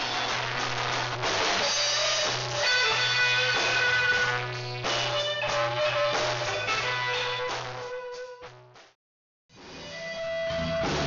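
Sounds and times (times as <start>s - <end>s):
music with guitar and drums: 0.0s - 8.6s, 9.5s - 11.0s.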